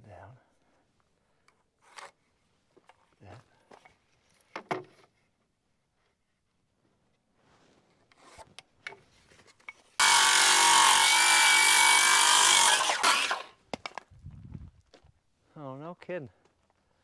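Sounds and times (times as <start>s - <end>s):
power saw cutting wood: 10.0s - 13.6s.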